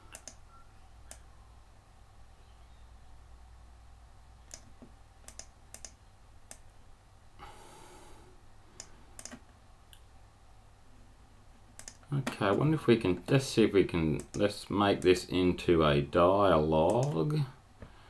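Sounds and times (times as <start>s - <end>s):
computer mouse clicks: 0.1s - 0.4s, 4.5s - 6.7s, 8.8s - 10.0s, 11.7s - 12.4s, 14.2s - 15.2s, 16.9s - 17.2s
person breathing out: 7.4s - 8.4s.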